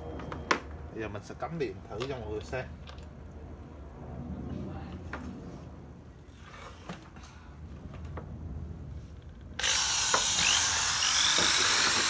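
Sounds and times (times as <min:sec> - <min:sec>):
hammer drill motor running: 0:09.6 - 0:12.0.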